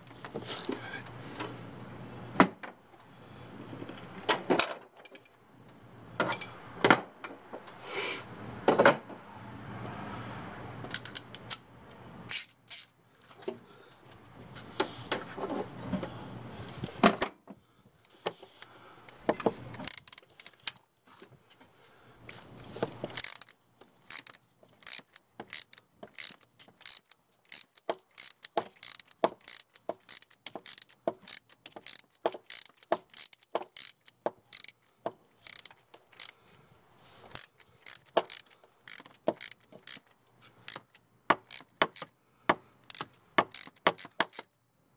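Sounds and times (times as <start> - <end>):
socket ratchet clicking: 12.3 - 13.0, 19.8 - 20.8, 23.1 - 34.8, 35.4 - 36.4, 37.3 - 42.1, 42.8 - 44.6
tool handling knocks: 27.8 - 34.4, 39.0 - 39.8.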